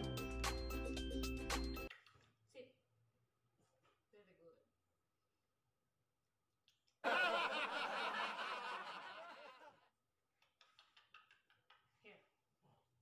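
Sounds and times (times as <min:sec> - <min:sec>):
snickering laugh: 0:07.0 - 0:09.7.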